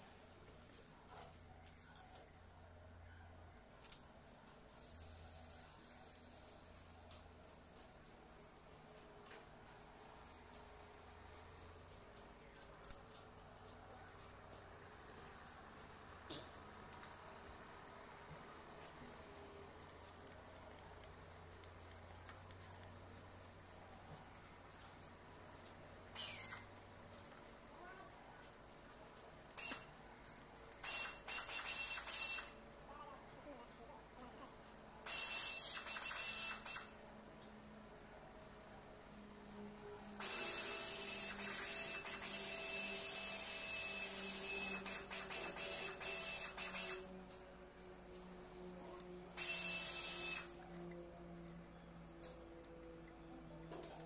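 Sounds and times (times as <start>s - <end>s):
ratchet wrench clicking: 19.8s - 32.6s, 35.1s - 36.9s, 40.2s - 47.0s, 49.4s - 50.8s.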